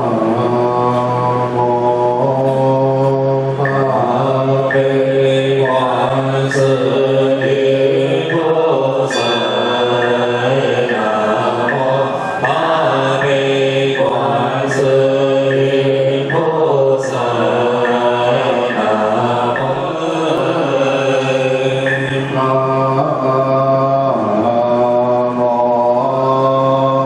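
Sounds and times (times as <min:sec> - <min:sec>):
soft rhythmic knock: 0:00.0 - 0:26.1
group chanting in unison: 0:00.0 - 0:27.0.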